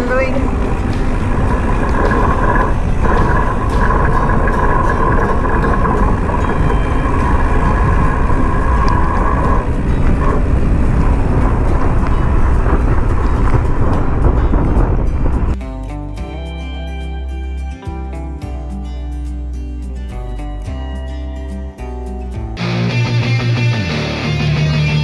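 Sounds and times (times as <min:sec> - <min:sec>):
steady whine-like tone: 0:00.0 - 0:13.6
wind rumble on microphone: 0:00.0 - 0:15.6
bike rattling clicks: 0:00.4 - 0:15.6.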